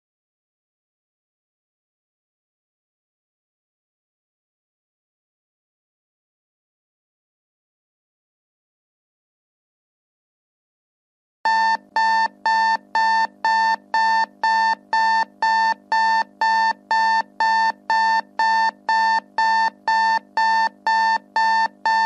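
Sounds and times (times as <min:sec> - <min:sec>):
timer alarm beeping: 0:11.5 - 0:22.0.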